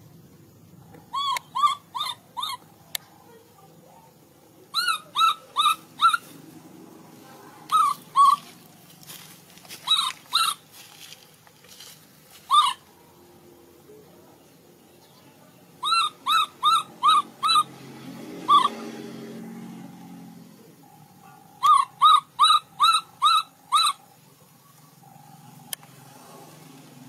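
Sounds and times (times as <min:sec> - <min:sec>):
baby monkey squeaking: 0:01.1 - 0:02.7, 0:04.7 - 0:06.4, 0:07.6 - 0:08.6, 0:09.8 - 0:10.7, 0:12.5 - 0:12.9, 0:15.8 - 0:17.8, 0:18.5 - 0:18.8, 0:21.6 - 0:24.1.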